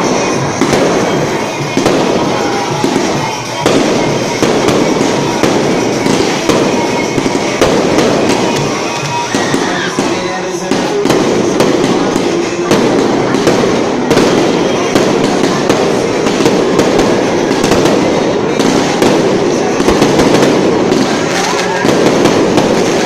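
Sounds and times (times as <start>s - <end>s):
fireworks crackling and banging: 0.0s - 23.0s.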